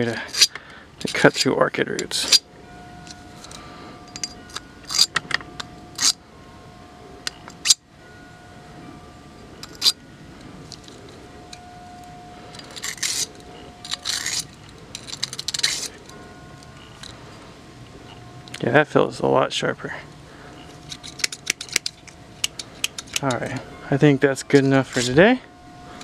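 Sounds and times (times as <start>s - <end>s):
shears clicking and snipping: 4.2s - 6.2s, 12.5s - 17.2s, 20.6s - 23.7s.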